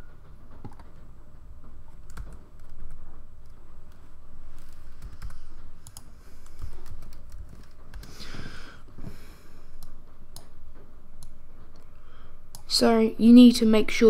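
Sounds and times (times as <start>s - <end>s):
computer keyboard keys clicking: 0.6s - 0.9s, 2.0s - 4.0s, 4.6s - 8.1s.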